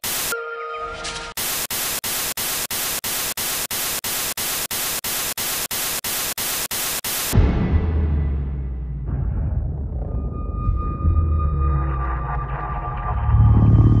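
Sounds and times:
television static hiss: 0.0s - 0.3s, 1.4s - 7.4s
deep low rumble: 7.4s - 14.0s.

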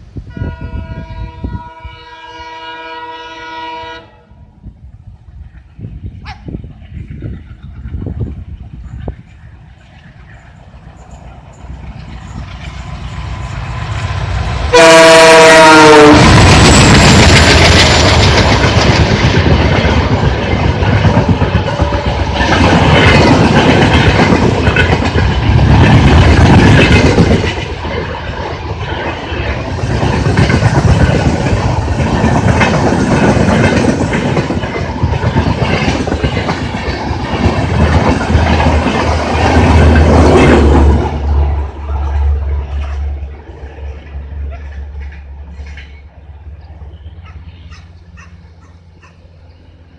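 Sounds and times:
diesel locomotives passing: 0.0s - 49.9s
locomotive horn blast: 0.3s - 4.4s, 14.6s - 16.5s
train wheels clickety-clack: 5.4s - 46.1s.

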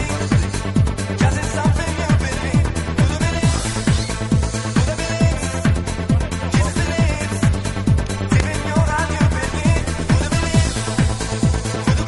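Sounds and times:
fast kick drum: 5.2s - 12.0s.

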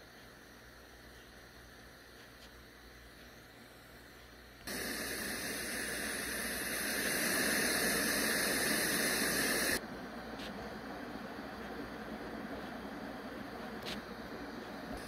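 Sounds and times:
white noise hiss from speaker: 0.0s - 15.0s.

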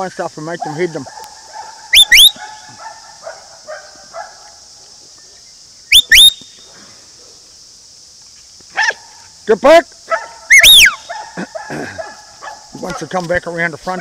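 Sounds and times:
distant dog barking: 0.5s - 7.5s, 8.7s - 9.3s, 10.1s - 13.2s.

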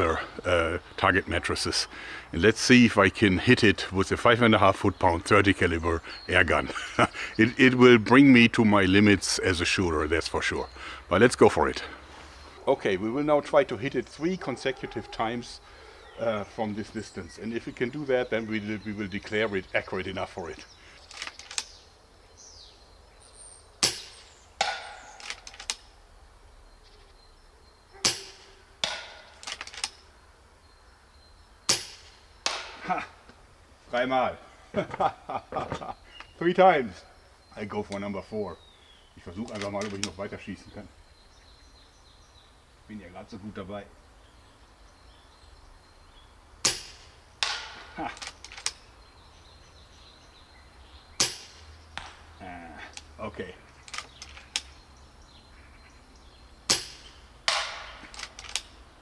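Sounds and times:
short clicks: 21.0s - 21.7s, 58.0s - 58.8s
rifle clicks: 21.0s - 21.8s, 24.9s - 25.9s, 28.1s - 30.0s, 53.8s - 54.8s, 56.7s - 58.8s
air rifle shot crack: 51.2s - 52.2s.

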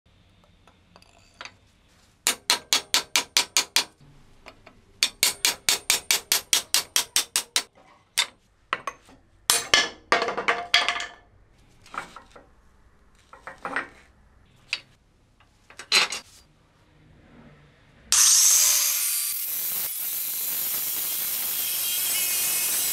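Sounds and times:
steel hammer head clanking: 8.2s - 11.2s.

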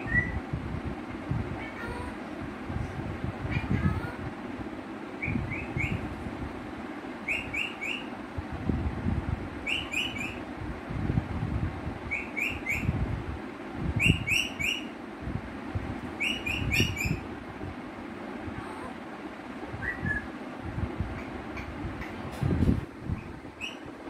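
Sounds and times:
low background rumble: 0.0s - 24.0s
parakeet chirping: 5.2s - 6.1s, 7.2s - 8.1s, 9.6s - 10.4s, 12.1s - 13.0s, 14.0s - 15.0s, 16.2s - 17.2s, 23.1s - 23.9s.

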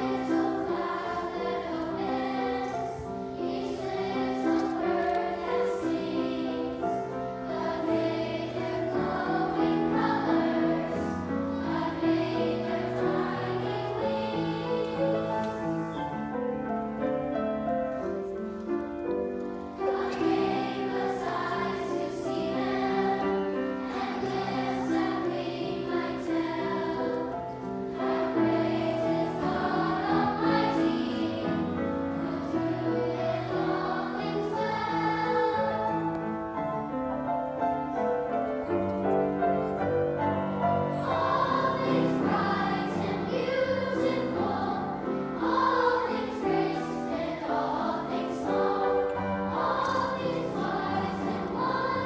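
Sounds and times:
children's choir singing: 0.0s - 52.0s
piano accompaniment: 0.0s - 52.0s.

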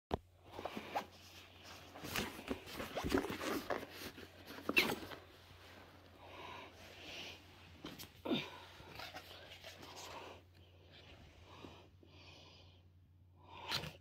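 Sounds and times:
fabric backpack rustling: 0.4s - 6.1s.

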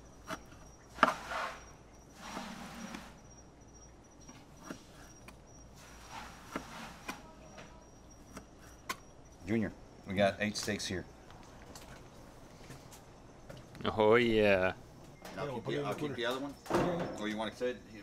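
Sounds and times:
slicing and handling noise: 0.0s - 3.3s, 4.2s - 7.5s.

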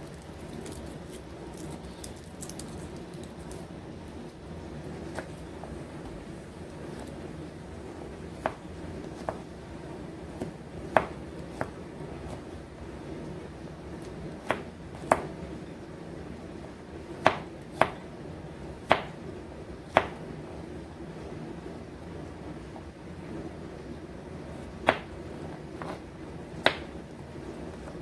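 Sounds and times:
knife chopping on plastic board: 8.4s - 9.5s, 10.3s - 12.4s, 14.0s - 15.3s, 17.2s - 18.0s, 18.8s - 19.2s, 19.9s - 20.2s, 24.8s - 25.2s, 25.8s - 26.0s, 26.6s - 27.0s.

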